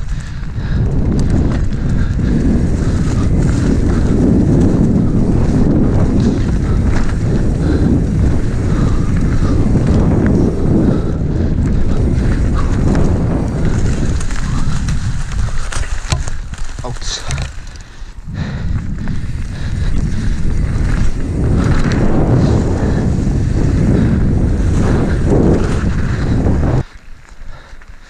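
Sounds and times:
bike rattling over bumps: 0:00.0 - 0:28.0
wind rushing over microphone: 0:00.0 - 0:28.0
tyres crunching on gravel: 0:11.8 - 0:18.2.

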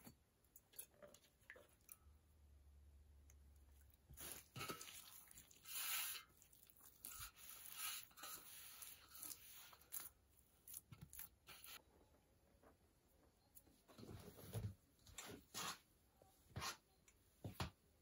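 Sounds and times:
hands kneading wet dough: 0:00.1 - 0:11.9.

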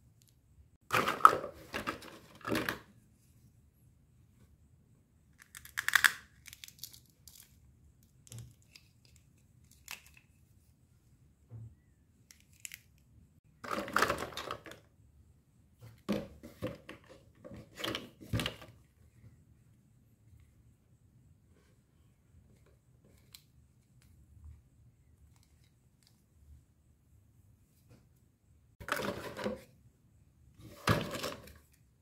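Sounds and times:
plastic toys clattering in box: 0:13.6 - 0:14.8, 0:28.8 - 0:29.6.

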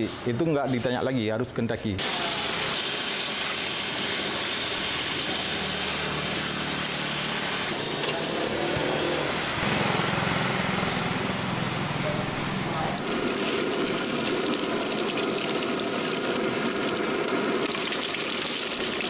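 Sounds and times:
engine running with low throb: 0:07.8 - 0:13.0.

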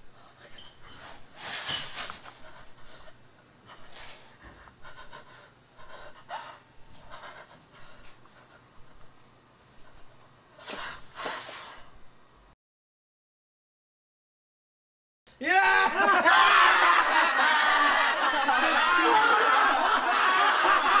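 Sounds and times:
woman panting and gasping: 0:03.8 - 0:09.0.

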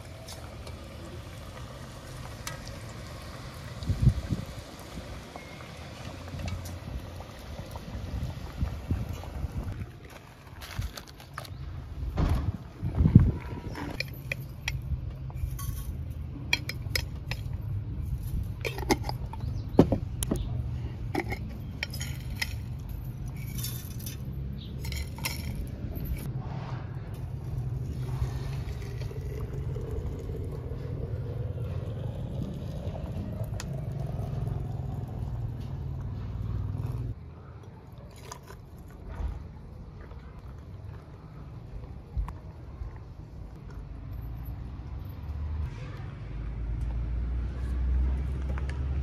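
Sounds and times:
glass jar and lid clinking: 0:13.9 - 0:17.6, 0:18.6 - 0:19.7, 0:21.1 - 0:26.3
steady low rumble: 0:24.8 - 0:37.5
hot water pouring into teapot: 0:27.5 - 0:36.1.

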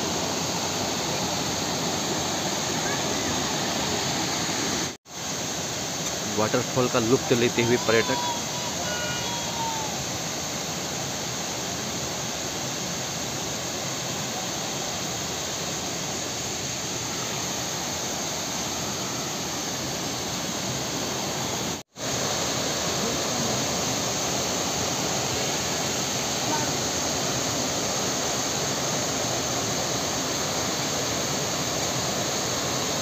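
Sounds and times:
waterfall roaring: 0:00.0 - 0:33.0.

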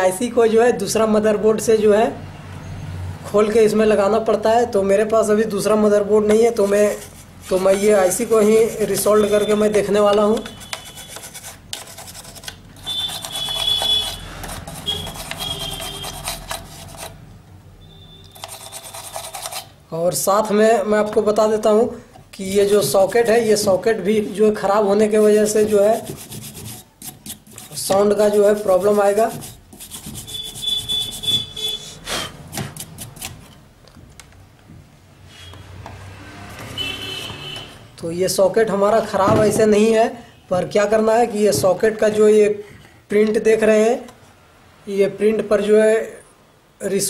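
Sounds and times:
brush scrubbing circuit board: 0:06.5 - 0:17.2, 0:18.4 - 0:19.8, 0:22.4 - 0:23.6, 0:25.0 - 0:31.9, 0:32.5 - 0:33.5.

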